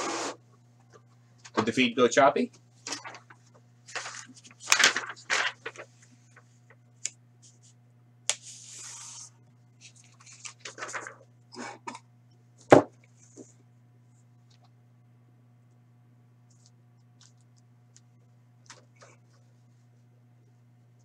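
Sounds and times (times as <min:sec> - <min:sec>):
paper rustling and scraping: 0:02.9 - 0:06.8, 0:07.4 - 0:11.3.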